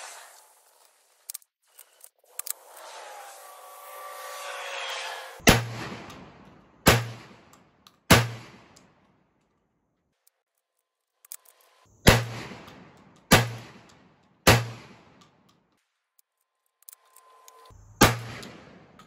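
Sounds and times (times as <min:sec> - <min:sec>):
shotgun shots echoing: 0:05.4 - 0:09.0, 0:12.0 - 0:15.4, 0:18.0 - 0:19.0.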